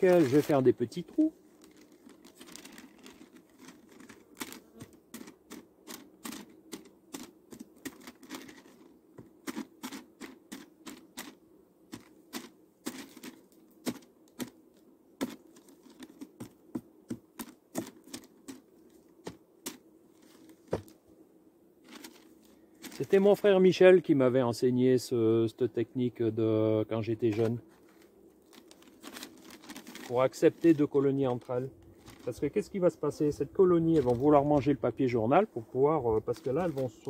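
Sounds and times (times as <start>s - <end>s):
hive tool tapping through paper: 0.0s - 21.0s, 21.8s - 23.2s, 27.3s - 32.6s, 33.8s - 34.7s, 36.1s - 37.0s.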